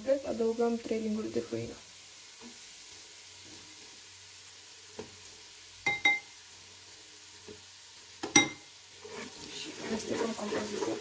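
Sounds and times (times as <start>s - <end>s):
garlic sizzling in a pan: 0.0s - 11.0s.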